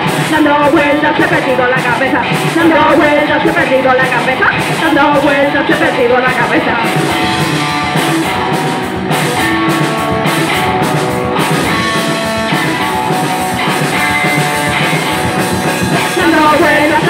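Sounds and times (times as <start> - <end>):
drum kit: 0.0 - 17.0
electric guitar: 0.0 - 17.0.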